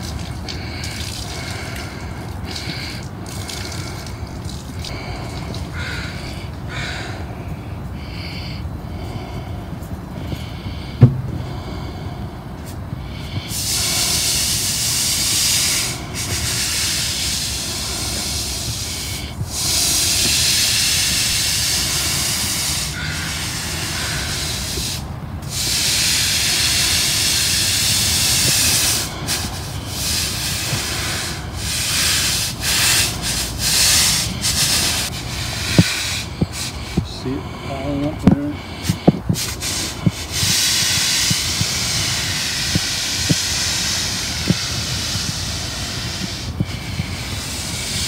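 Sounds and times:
push broom scraping wet asphalt: 23.9s - 48.0s.

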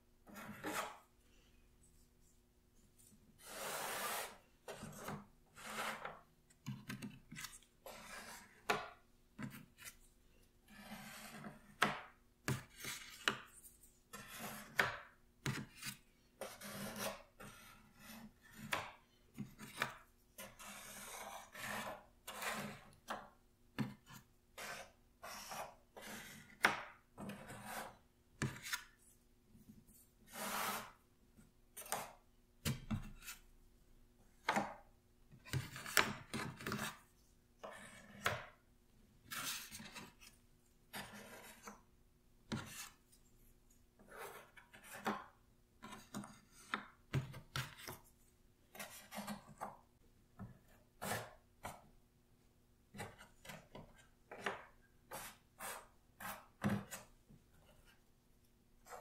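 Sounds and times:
puzzle pieces scraping on board: 3.4s - 6.2s.

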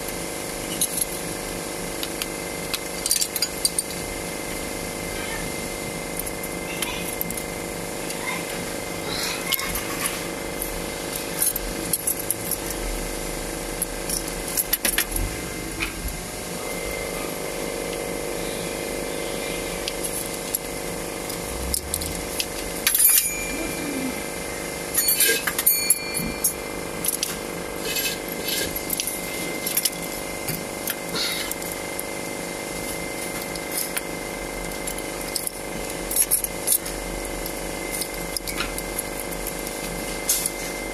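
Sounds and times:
steady background hum: 0.0s - 40.9s
metallic tool clinks and clicks: 21.3s - 23.8s, 25.0s - 30.1s, 34.6s - 40.6s.

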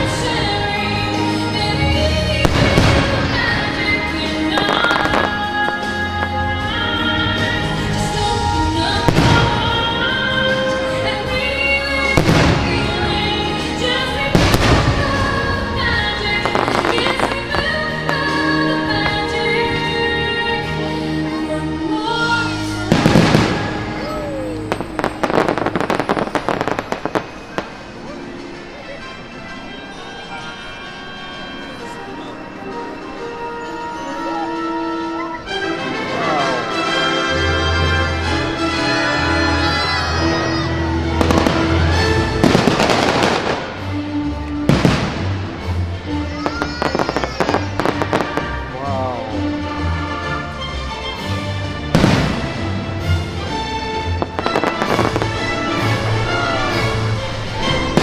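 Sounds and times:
music: 0.0s - 58.0s
fireworks banging and crackling: 1.9s - 6.7s, 7.7s - 10.0s, 12.0s - 19.4s, 22.8s - 28.7s, 41.1s - 45.8s, 46.4s - 48.7s, 51.9s - 53.2s, 54.1s - 58.0s
firework bang: 52.0s - 52.5s.

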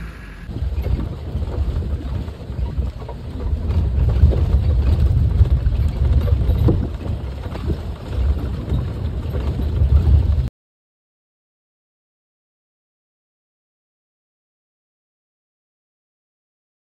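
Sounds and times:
wind buffeting microphone: 0.0s - 10.5s.

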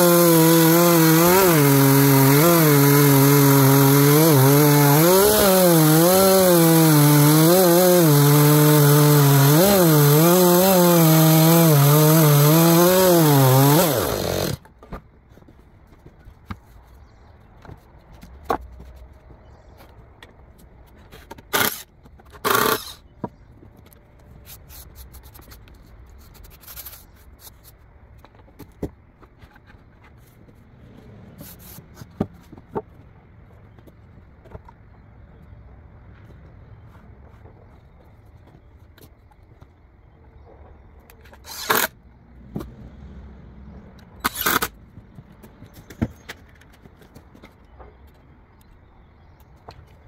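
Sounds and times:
chainsaw cutting a log: 0.0s - 14.6s, 21.5s - 23.0s, 41.4s - 42.0s.

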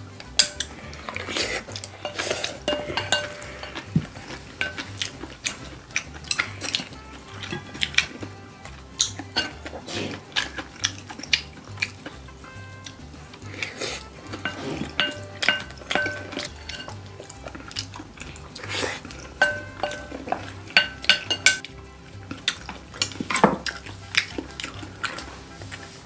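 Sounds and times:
wooden spoon scraping glass bowl: 0.4s - 17.8s, 18.6s - 21.6s
glass ringing: 2.0s - 5.1s, 14.2s - 17.0s, 19.4s - 21.6s.

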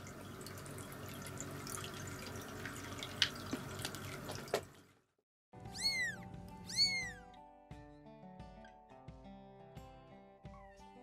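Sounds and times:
music: 5.5s - 11.0s
cat meowing: 5.7s - 7.4s.

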